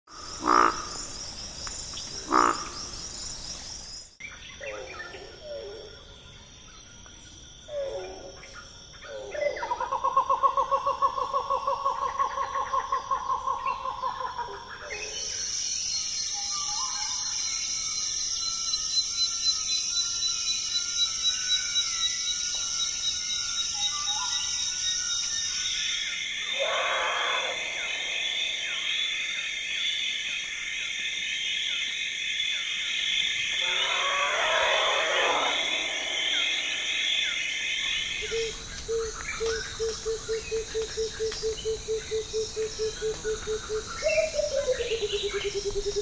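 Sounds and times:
high-pitched insect chorus: 0.1s - 46.0s
pulsing high chirping: 15.0s - 29.6s, 33.6s - 38.6s
loud falling animal calls: 26.4s - 29.1s, 33.6s - 38.0s
rapid pulsing animal call: 26.4s - 29.3s, 33.6s - 38.4s.

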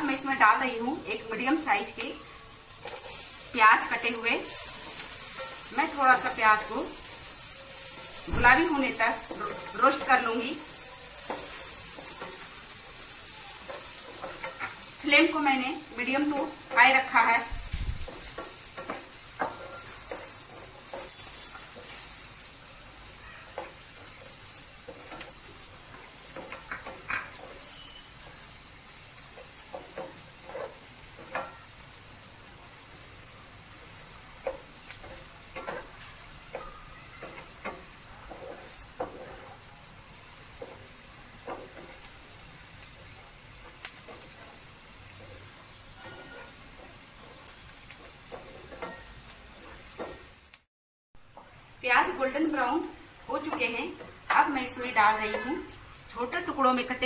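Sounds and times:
onions sizzling in oil: 0.0s - 57.0s
spatula scraping a pan: 2.6s - 15.4s, 18.0s - 22.5s, 23.2s - 31.8s, 33.0s - 50.4s.

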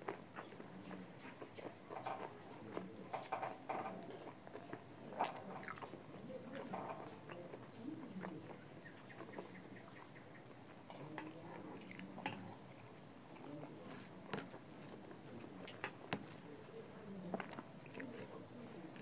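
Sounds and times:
person chewing: 4.0s - 6.7s, 11.8s - 19.0s.

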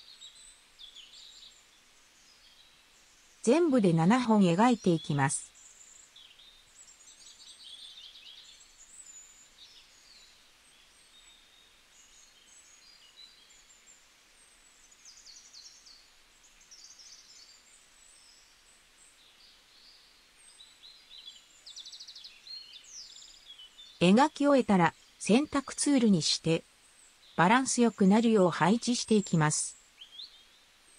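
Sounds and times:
birds chirping and trilling: 0.0s - 13.9s
faint steady hiss: 0.0s - 30.9s.

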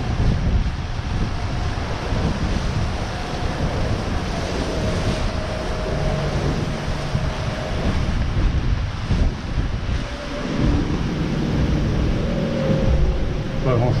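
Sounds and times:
wind and sea rushing: 0.0s - 14.0s
wind buffeting microphone: 0.0s - 14.0s.

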